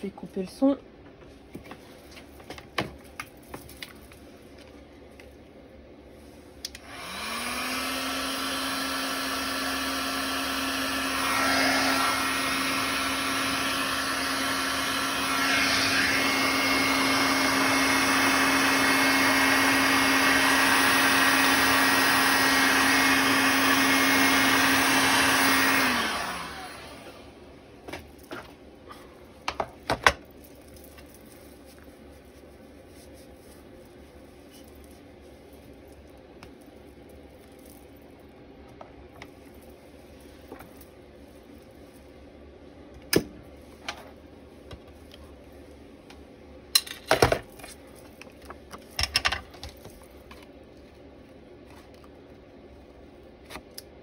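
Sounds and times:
heat gun blowing: 6.6 - 27.4.

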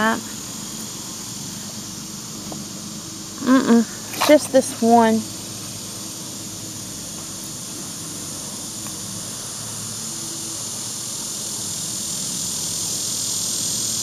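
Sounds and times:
insect chorus hissing: 0.0 - 14.0.

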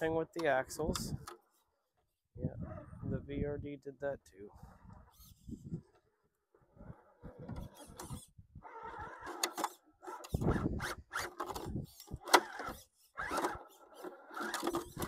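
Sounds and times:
electric motor and gears whirring: 4.5 - 15.0
tires scrabbling on rock: 4.7 - 15.0.

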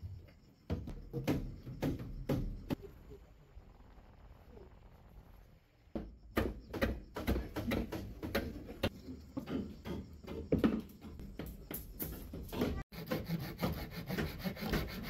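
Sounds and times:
hand saw cutting bamboo: 12.8 - 15.0.

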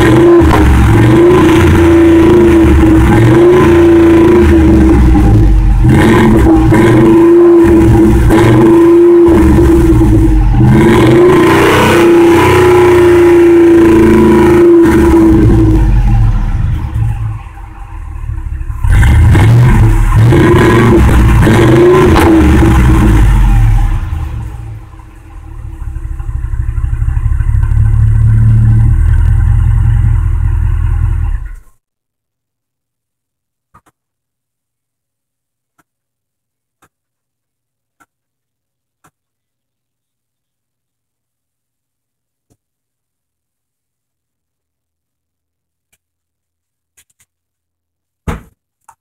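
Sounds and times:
pickup truck exhaust note: 0.0 - 31.6.

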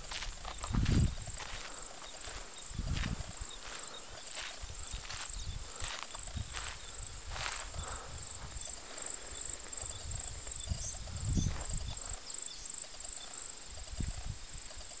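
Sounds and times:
low wind thumps: 0.0 - 3.8, 9.7 - 12.1
footsteps on dirt track: 0.0 - 14.9
insect chirping: 0.0 - 15.0.

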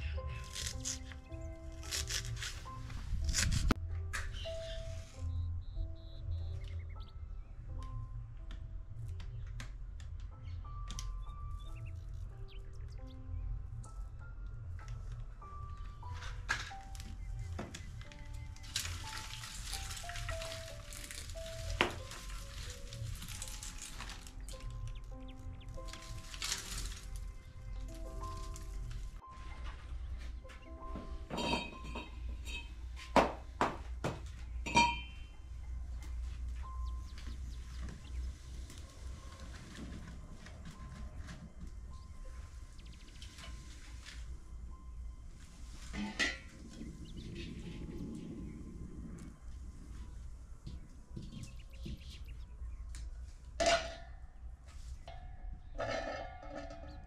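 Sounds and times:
faint background music: 0.0 - 57.0
metal pots and utensils clinking: 30.9 - 33.1, 34.6 - 35.3, 45.9 - 46.8, 53.6 - 54.3, 55.1 - 57.0
metal pot clanking on stove: 31.3 - 32.7, 34.7 - 35.2.

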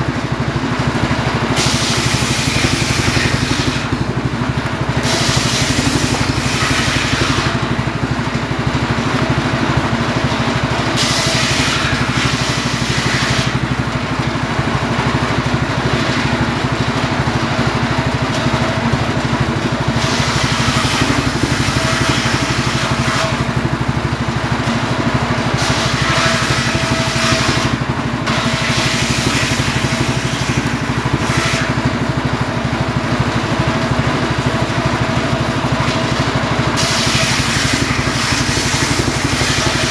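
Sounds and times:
circular saw engine drone: 0.0 - 39.9
saw blade rasping through logs: 1.5 - 7.9, 10.2 - 14.0, 15.8 - 16.8, 19.4 - 24.8, 25.4 - 32.2, 34.7 - 39.9.

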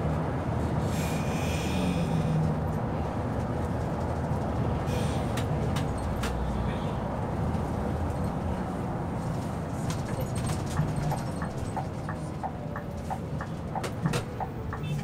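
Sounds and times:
bus engine and road hum: 0.0 - 15.0.

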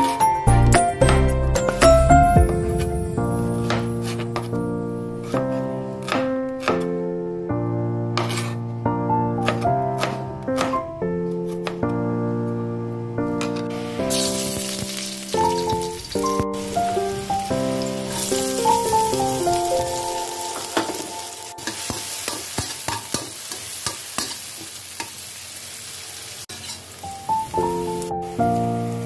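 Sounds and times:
background music: 0.0 - 22.3, 27.1 - 29.0
metal spatula scraping wok: 3.4 - 4.6, 8.2 - 8.6, 26.5 - 26.9
vegetables sizzling in hot oil: 13.7 - 29.0.

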